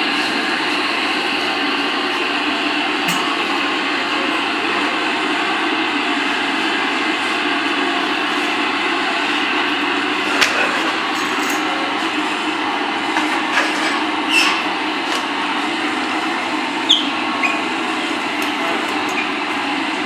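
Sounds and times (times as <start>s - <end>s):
loud background noise: 0.0s - 20.0s.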